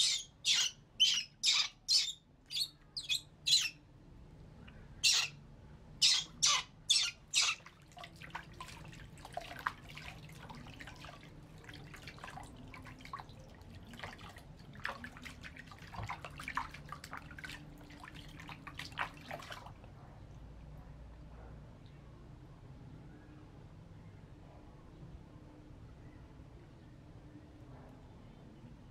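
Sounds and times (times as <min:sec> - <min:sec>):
baby monkey squealing: 0:00.0 - 0:03.7, 0:05.0 - 0:05.3, 0:06.0 - 0:07.6
water splashing in a plastic basin: 0:07.2 - 0:20.0.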